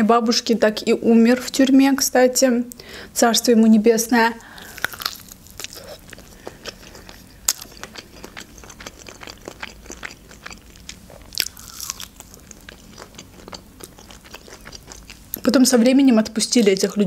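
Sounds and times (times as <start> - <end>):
crunching and chewing fried chicken: 4.4 - 15.5.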